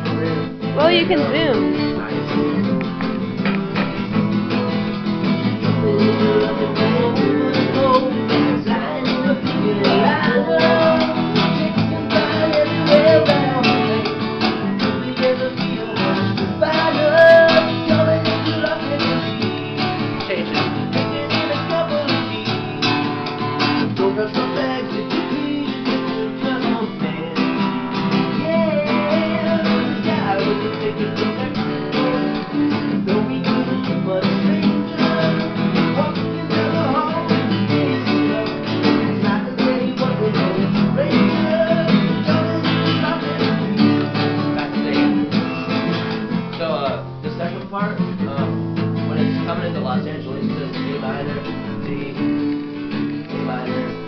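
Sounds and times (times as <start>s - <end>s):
acoustic guitar strumming: 0.0s - 54.0s.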